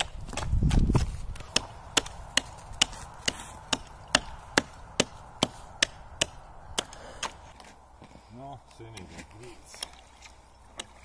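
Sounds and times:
axe chopping ice: 0:00.0 - 0:07.4.

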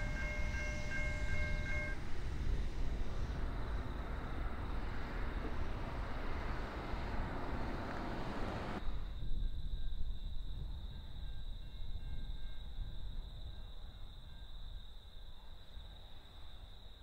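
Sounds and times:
high-pitched insect drone: 0:00.0 - 0:05.6
low wind rumble: 0:00.0 - 0:15.1.

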